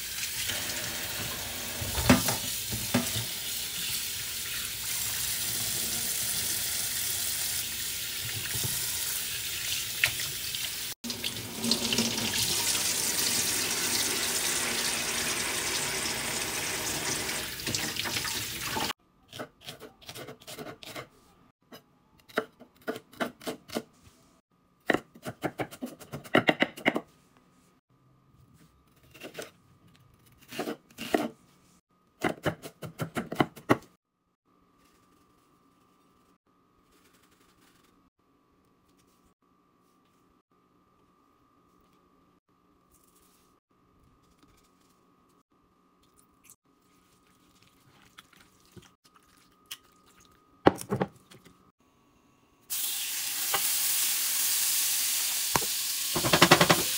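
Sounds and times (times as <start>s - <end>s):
faucet running into steel bowl: 0.0s - 18.9s.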